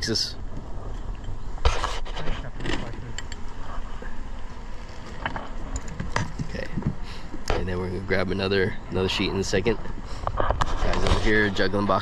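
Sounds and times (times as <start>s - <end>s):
hive tool clicking and scraping: 1.0s - 3.6s, 4.2s - 7.6s.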